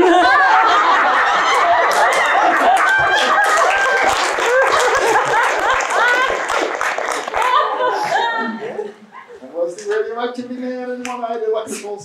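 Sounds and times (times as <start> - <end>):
audience laughing and cheering: 0.0 - 9.5
scattered clapping: 1.4 - 7.8.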